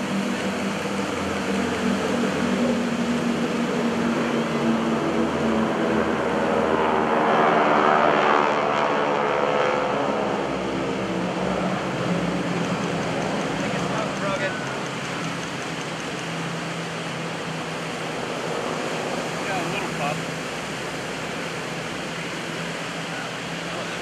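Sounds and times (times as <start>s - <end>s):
propeller planes flying past: 0.0s - 24.0s.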